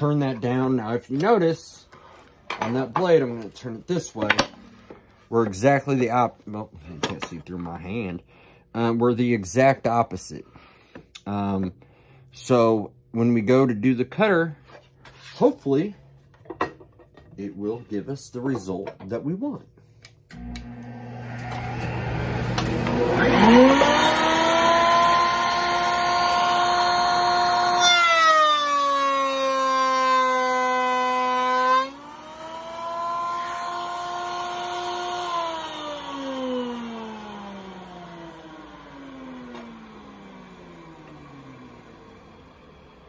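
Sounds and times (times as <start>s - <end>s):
router motor whine: 20.3s - 43.0s
router bit cutting board: 20.4s - 43.0s.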